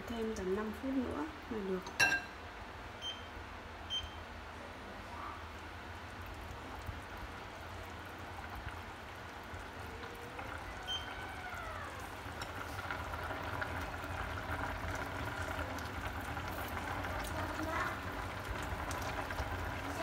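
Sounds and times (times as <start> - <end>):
pot simmering and bubbling: 5.1 - 20.0.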